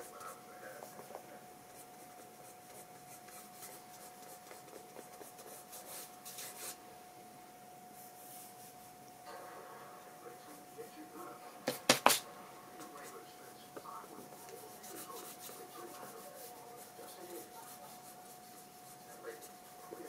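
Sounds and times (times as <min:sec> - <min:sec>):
wooden stick scratching on paper: 0:00.0 - 0:06.8, 0:13.8 - 0:20.0.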